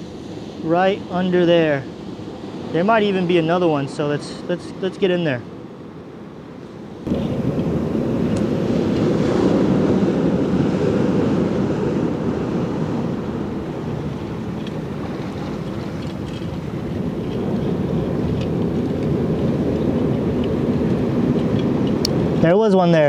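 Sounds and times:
muffled underwater water rushing: 7.1 - 22.4.

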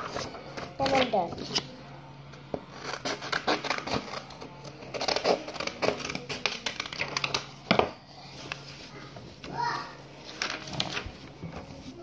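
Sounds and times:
scissors snipping paper: 2.8 - 7.5
paper rustling: 10.2 - 12.0.

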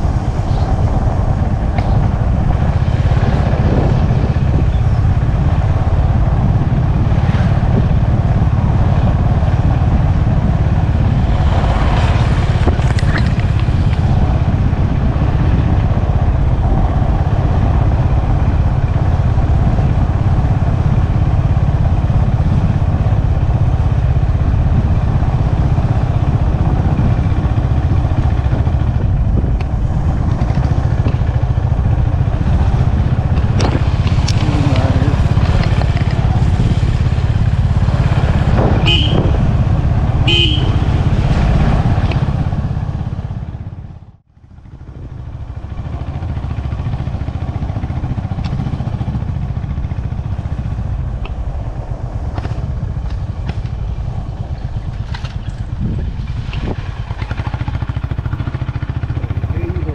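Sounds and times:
low rumble of wind: 0.0 - 59.9
motorcycle engine running: 0.0 - 59.9
motorcycle horn toots: 38.7 - 39.4, 40.2 - 41.0.

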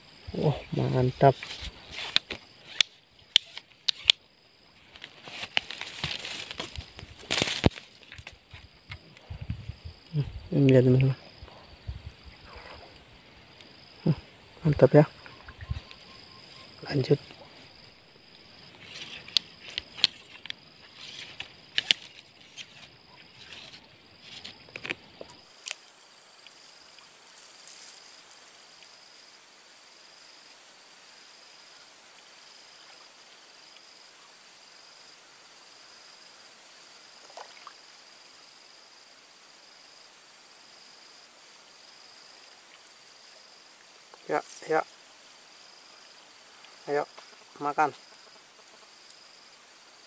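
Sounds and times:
insects chirring high: 0.0 - 50.0
low pulsing chirr: 8.5 - 24.4.

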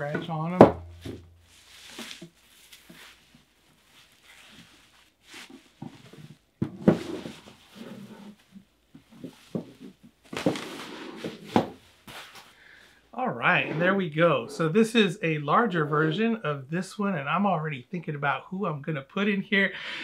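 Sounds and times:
bubble wrap crinkling: 1.4 - 6.5.

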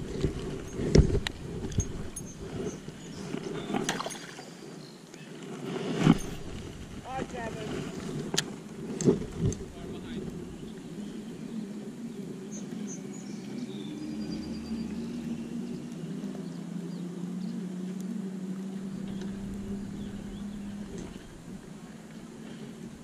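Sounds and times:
distant outboard engine drone: 0.0 - 23.0.

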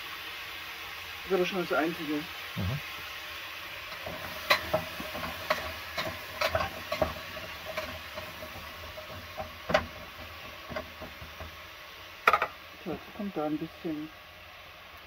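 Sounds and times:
vegetables sizzling in a pot: 0.0 - 15.0
utensil knocking against pot: 4.0 - 11.6, 12.2 - 12.6.

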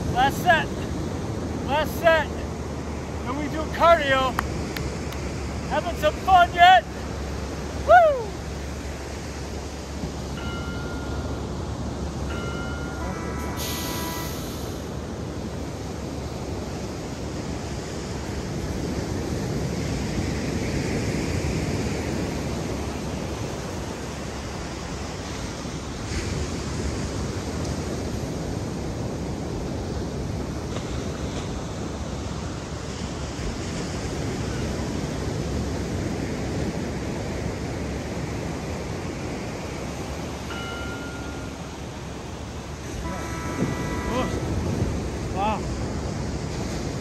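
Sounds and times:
ocean surf washing onto beach: 0.0 - 47.0
wind on microphone: 42.4 - 47.0.

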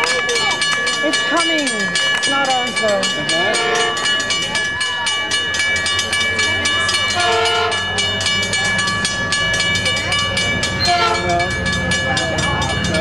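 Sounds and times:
crossing bell ringing: 0.0 - 13.0
locomotive rumble: 0.0 - 13.0
train horn blasts: 7.1 - 7.8, 10.8 - 11.4.

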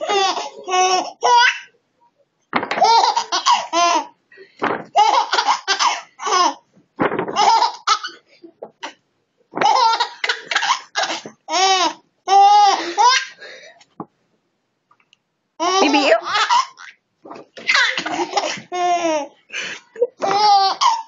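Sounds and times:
baby laughing: 0.0 - 1.7, 2.8 - 4.2, 4.9 - 6.6, 7.3 - 9.0, 9.6 - 13.4, 15.6 - 17.0, 17.6 - 21.0.

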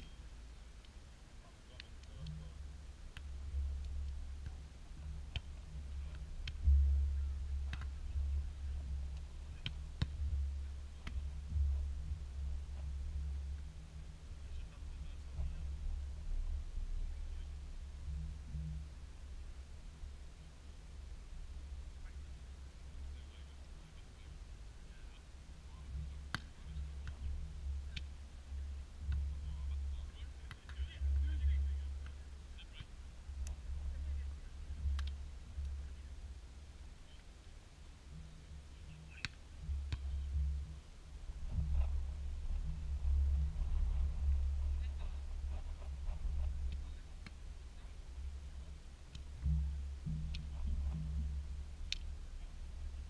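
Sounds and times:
wind rumble on microphone: 2.3 - 23.2, 39.6 - 53.0
volleyball being struck by hand: 7.6 - 8.0, 26.3 - 27.3.

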